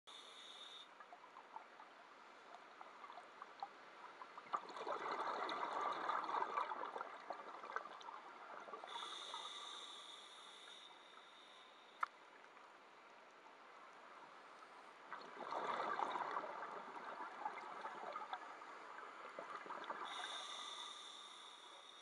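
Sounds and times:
gurgling exhaled bubbles: 4.4 - 9.3, 15.2 - 18.5
regulator hissing inhalation: 8.9 - 11.8, 20.1 - 22.0.

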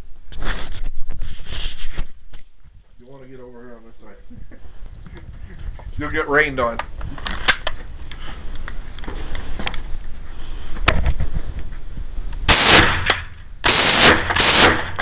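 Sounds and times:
submachine gun bursts: 12.5 - 15.0.

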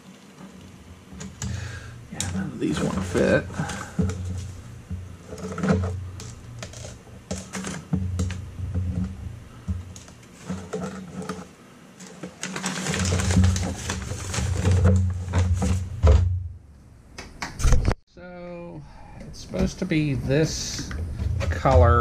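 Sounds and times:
clicks and knocks of hands working: 0.1 - 16.2
handling noise rumble: 0.4 - 16.7, 18.7 - 22.0.

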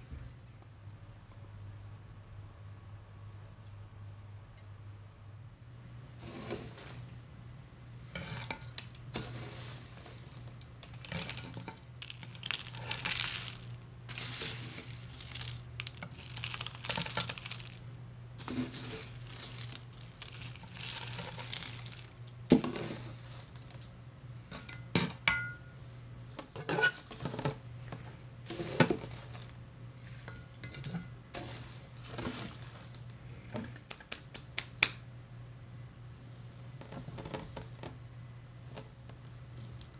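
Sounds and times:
potting soil pouring: 6.2 - 7.1, 8.0 - 24.9, 28.4 - 33.2.

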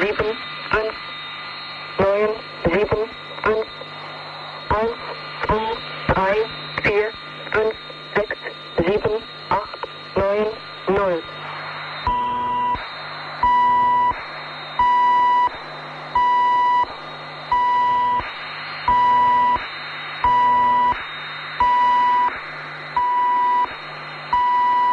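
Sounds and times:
electronic beep: 4.6 - 11.3, 11.9 - 22.4, 23.0 - 24.9.

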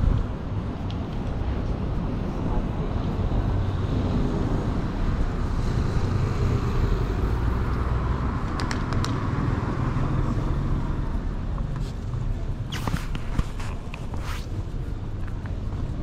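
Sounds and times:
cars passing: 0.0 - 16.0.

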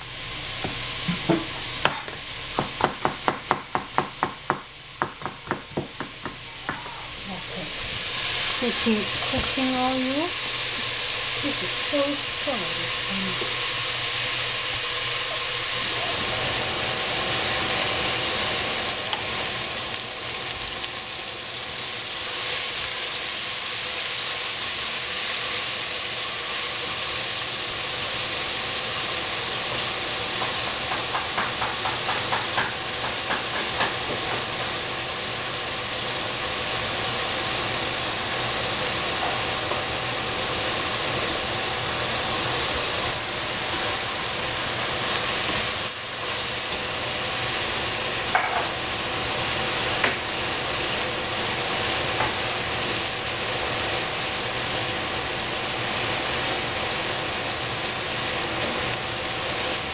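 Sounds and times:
onions sizzling in a pot: 0.0 - 59.9.

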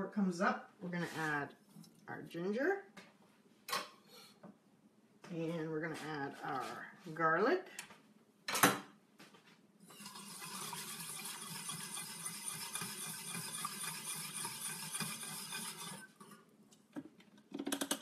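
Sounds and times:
spoon scraping saucepan: 9.9 - 16.4.

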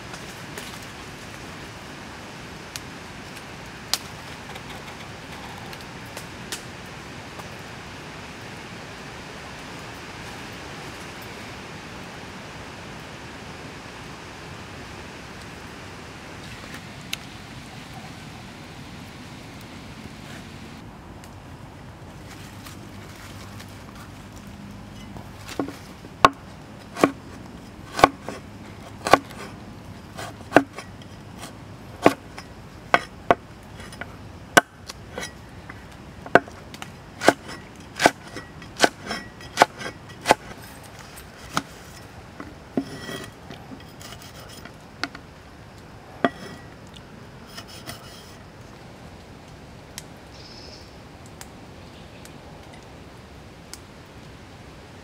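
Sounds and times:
meat cleaver chopping on wood: 29.0 - 29.3.

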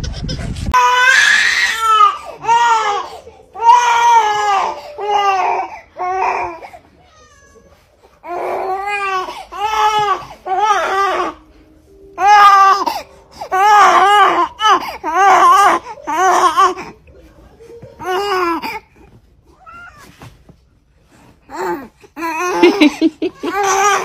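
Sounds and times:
infant crying: 0.8 - 11.6, 12.2 - 17.0, 21.5 - 24.0.

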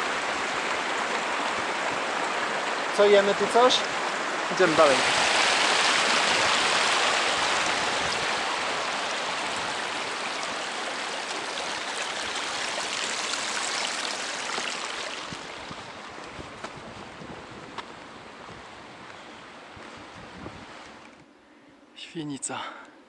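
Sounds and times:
stream splashing over rocks: 0.0 - 16.8.

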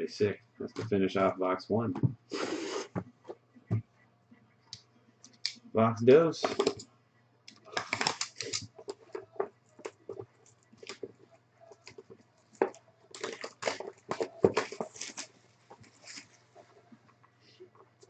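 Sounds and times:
plastic shrink wrap crinkling: 7.6 - 11.1, 11.7 - 16.9.

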